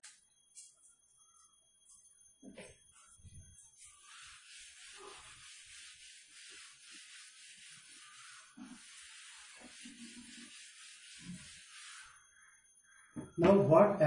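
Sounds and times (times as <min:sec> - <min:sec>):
duster wiping chalkboard: 0:02.5 - 0:12.2.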